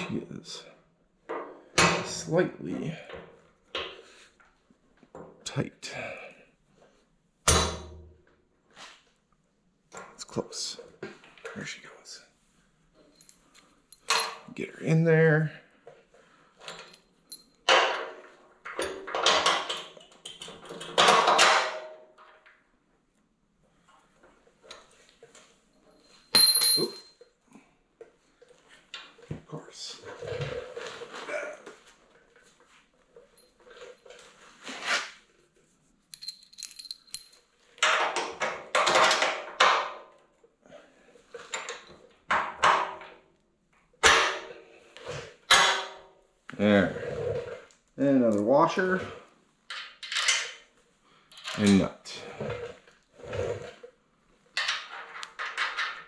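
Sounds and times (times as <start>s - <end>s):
metal bolts clinking: 13.0s - 14.5s, 16.6s - 22.4s, 25.8s - 27.6s, 36.1s - 39.8s, 49.7s - 50.6s, 54.6s - 56.0s
metal bolt scraping and clinking: 16.6s - 22.4s, 33.2s - 35.2s, 49.7s - 50.7s, 54.5s - 56.0s.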